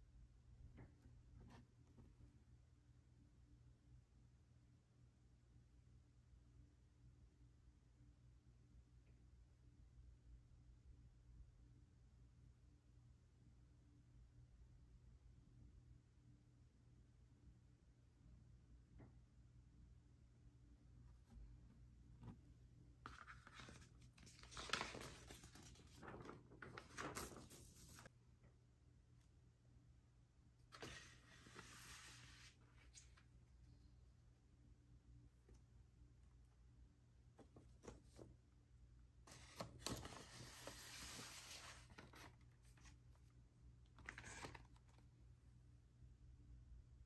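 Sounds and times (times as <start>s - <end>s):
record sleeve rustling and scraping: 23.1s - 28.1s, 30.7s - 33.2s, 39.3s - 43.0s, 44.0s - 45.0s.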